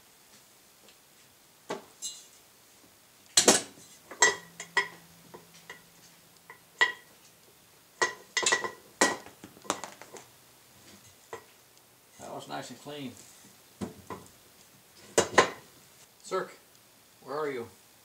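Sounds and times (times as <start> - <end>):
metal-on-metal clinks and knocks: 3.4 - 7.2, 8.0 - 10.2.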